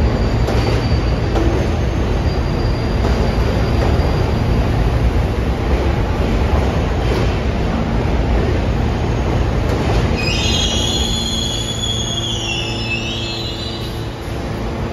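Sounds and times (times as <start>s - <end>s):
subway cars rumbling: 0.0s - 14.9s
high wheel squeal: 1.9s - 4.6s, 10.2s - 14.2s.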